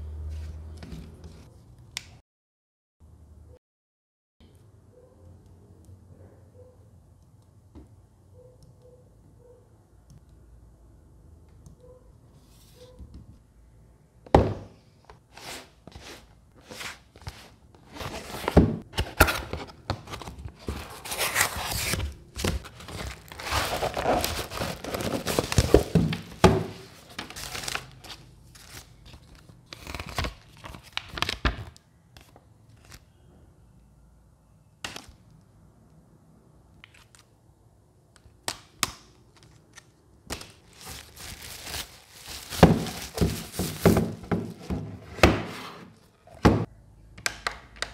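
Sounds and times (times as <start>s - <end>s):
items knocking on table: 14.3s - 14.7s, 42.5s - 45.5s
paper and plastic rustling: 15.3s - 31.4s, 39.3s - 45.0s
cardboard box handled: 18.0s - 27.7s, 40.7s - 45.4s.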